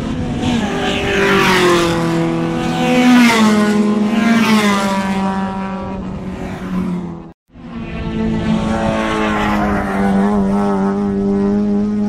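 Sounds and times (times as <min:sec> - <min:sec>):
racing car engines revving: 0:00.0 - 0:12.0.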